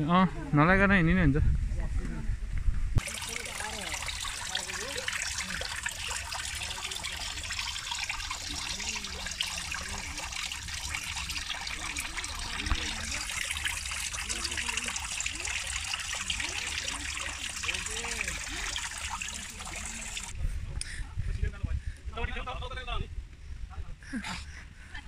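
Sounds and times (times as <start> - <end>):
waterfall trickling into pool: 3.0 - 20.4.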